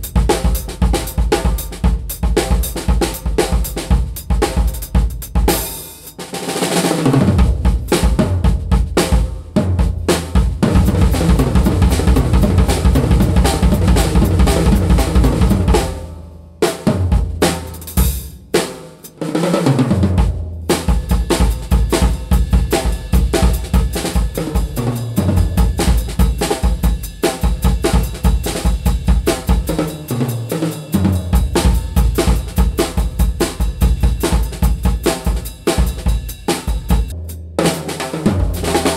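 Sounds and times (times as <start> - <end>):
drum kit grooves: 0.0 - 38.9
tom fills: 10.1 - 16.2.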